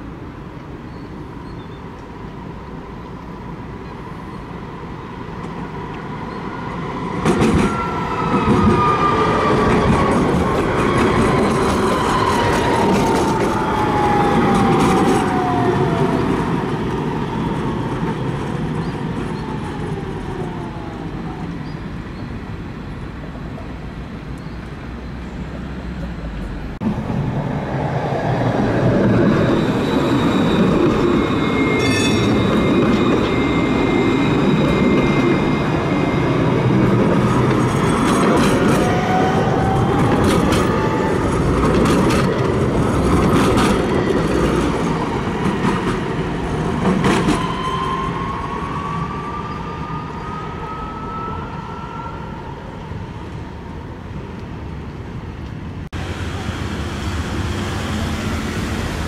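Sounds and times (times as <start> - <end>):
tram wheels rolling on rails: 5.2 - 59.0
high-pitched wheel squeal: 29.3 - 37.9, 47.0 - 52.9.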